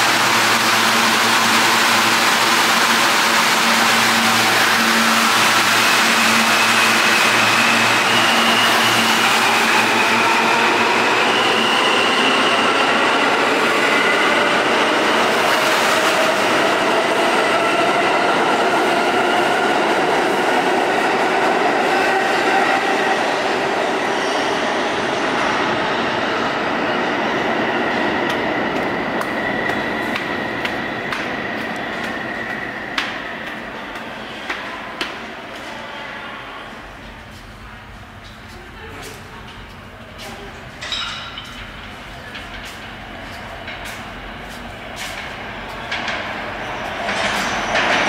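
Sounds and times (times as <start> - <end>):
train propulsion whine: 0.0 - 35.4
train hum: 0.0 - 48.0.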